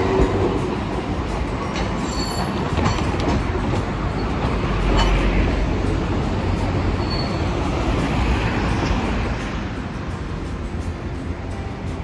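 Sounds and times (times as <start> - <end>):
streetcar wheels clacking: 0.0 - 12.0
high wheel squeal: 1.7 - 3.1, 6.5 - 8.0.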